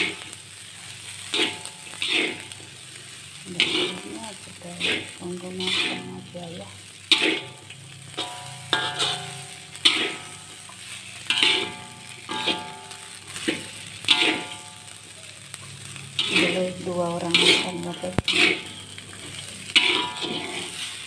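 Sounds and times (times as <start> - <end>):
rice sizzling in a wok: 0.0 - 21.0
spatula scraping wok: 0.0 - 21.0
spatula clanking on wok: 1.2 - 2.5, 7.0 - 21.0.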